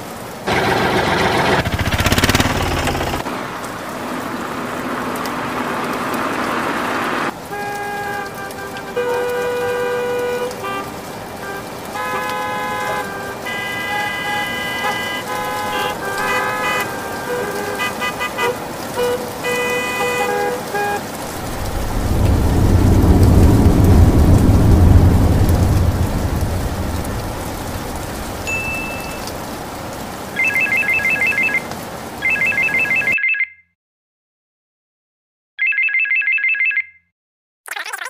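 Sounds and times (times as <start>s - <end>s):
rain hiss: 0.0s - 32.9s
car horns tooting: 7.4s - 21.2s
low thunder rumble: 21.3s - 29.7s
telephone ringtone trilling: 32.3s - 33.6s, 35.6s - 37.0s.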